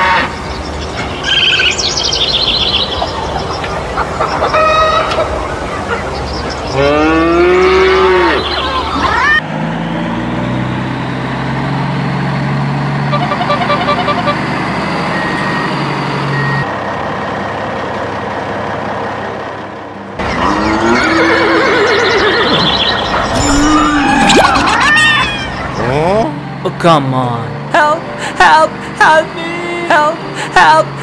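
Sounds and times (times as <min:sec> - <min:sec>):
low truck engine hum: 0:00.0 - 0:31.0
farm animal calls: 0:20.2 - 0:26.2.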